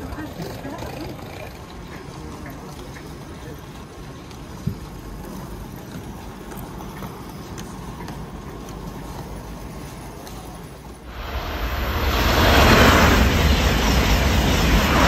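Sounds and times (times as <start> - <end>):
rolling luggage clicks: 0.0 - 11.1.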